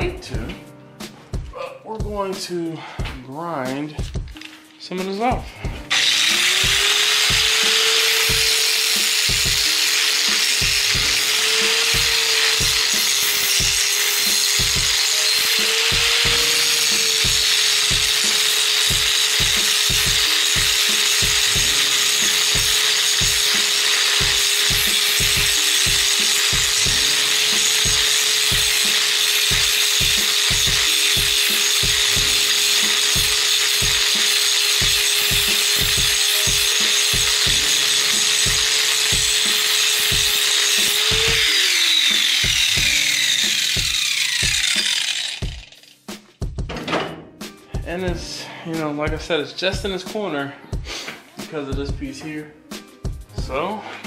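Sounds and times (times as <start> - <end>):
angle grinder grinding metal: 5.8 - 46.2.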